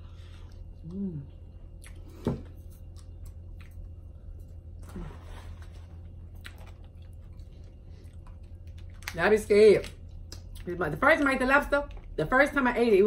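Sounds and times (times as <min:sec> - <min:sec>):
steady low hum: 0:00.0 - 0:13.0
chewing: 0:01.7 - 0:04.9, 0:06.0 - 0:09.2.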